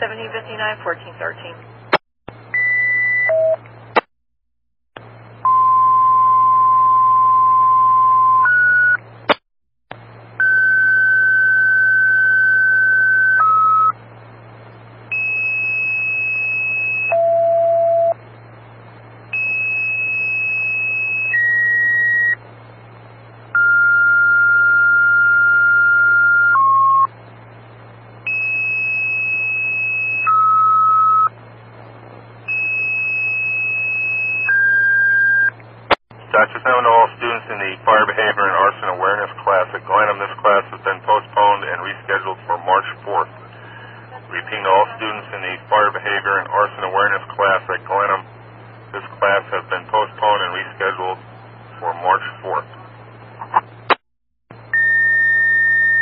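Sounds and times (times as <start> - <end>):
low hum: 5.0 - 56.0
radio hiss: 36.2 - 54.0.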